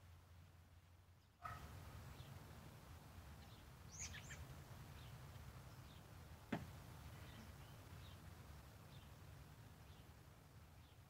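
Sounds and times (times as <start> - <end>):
bird chirps: 3.5 - 4.4.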